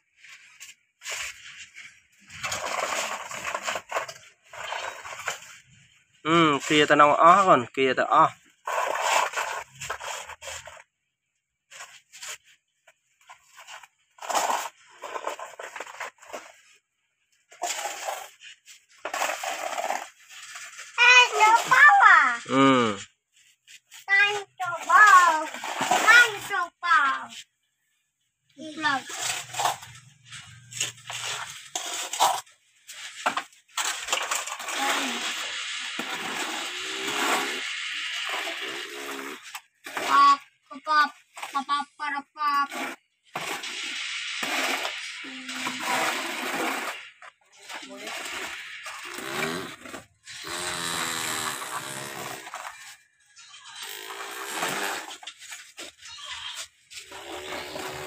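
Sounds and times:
sand scraped on plastic toy: 0.2 - 7.6, 8.2 - 10.9, 11.7 - 16.8, 17.5 - 27.5, 28.6 - 58.0
board scraping through sand: 8.6 - 10.8, 33.0 - 40.4, 42.5 - 53.0.

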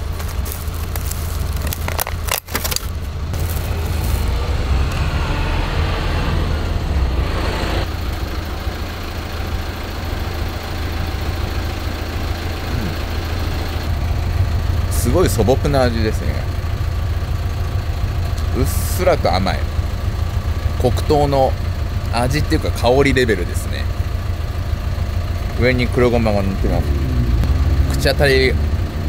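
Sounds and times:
steady low rumble: 0.0 - 5.6, 12.6 - 22.8.

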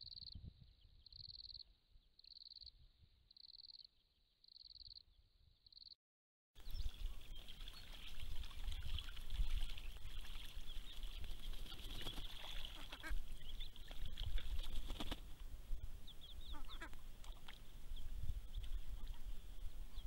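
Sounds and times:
ducklings peeping: 16.1 - 17.0.

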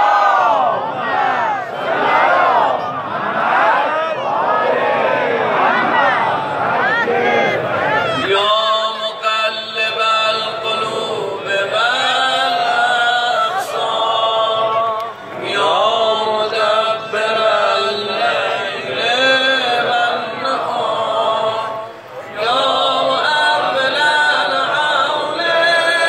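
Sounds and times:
men singing a cappella hymn: 8.2 - 26.0.

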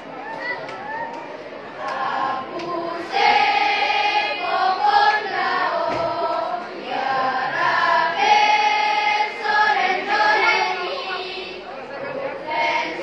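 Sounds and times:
choir singing sustained notes: 1.8 - 13.0.

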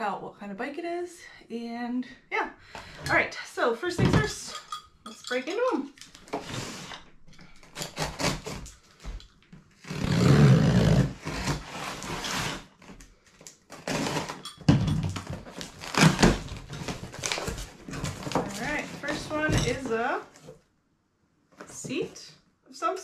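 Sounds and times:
knife slitting packing tape: 7.6 - 9.0, 9.8 - 14.5
tape and cardboard ripping: 7.7 - 9.2, 9.8 - 19.2.

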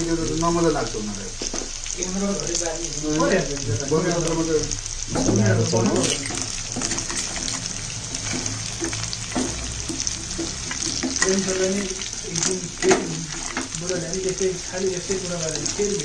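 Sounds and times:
meat sizzling in oil: 0.0 - 16.0
ladle scraping a wok: 5.8 - 13.8.

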